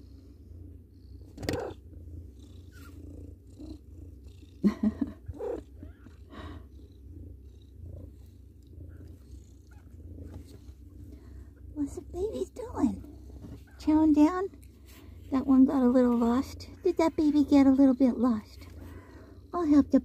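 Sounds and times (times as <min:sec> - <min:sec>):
cat purring: 0:00.0 - 0:20.0.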